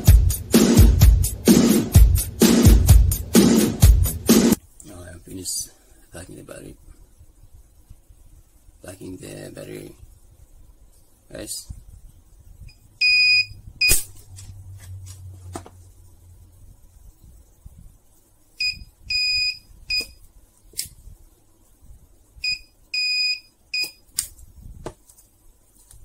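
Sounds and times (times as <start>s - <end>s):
spot welder beeps: 13.0s - 14.0s, 18.6s - 20.2s, 22.4s - 24.0s
spot welder firing crack: 13.9s - 14.4s.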